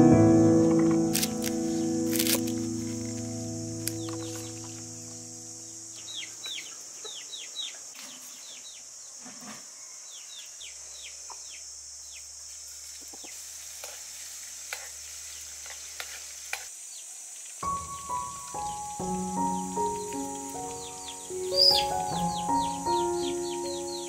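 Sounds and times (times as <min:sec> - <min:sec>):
bird chirps: 0:01.6 - 0:08.9, 0:17.6 - 0:24.0
hot liquid sizzling: 0:12.7 - 0:21.4.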